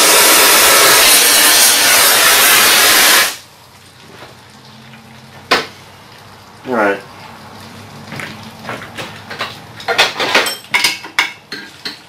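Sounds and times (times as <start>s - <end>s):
gas torch flame hissing: 0.0s - 3.5s.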